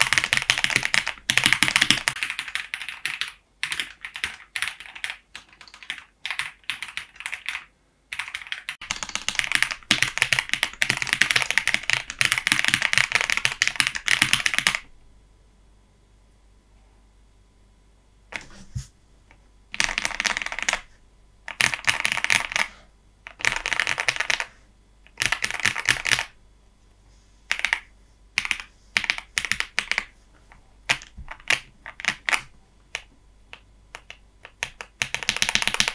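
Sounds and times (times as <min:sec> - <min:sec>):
mechanical keyboard typing: 0:00.0 - 0:14.9, 0:19.7 - 0:20.9, 0:21.5 - 0:22.7, 0:23.3 - 0:24.5, 0:25.1 - 0:26.4, 0:27.5 - 0:30.1, 0:30.9 - 0:35.9.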